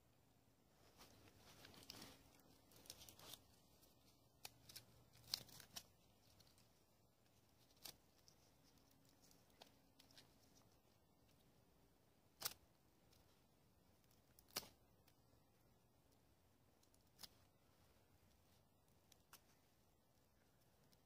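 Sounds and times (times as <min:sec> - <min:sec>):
short rustles: 0:00.8 - 0:06.7.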